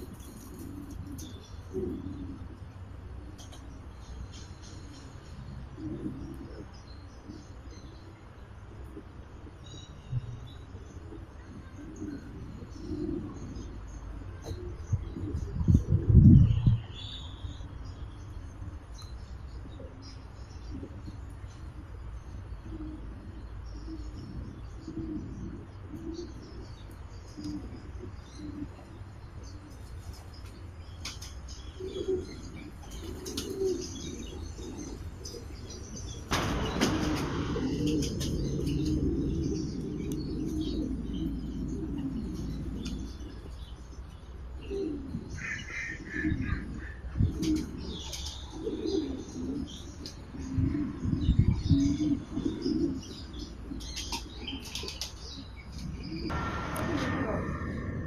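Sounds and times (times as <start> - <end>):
doves cooing: 0.0 - 16.6, 19.6 - 58.0
loud rushing noise: 36.3 - 40.1, 56.3 - 58.0.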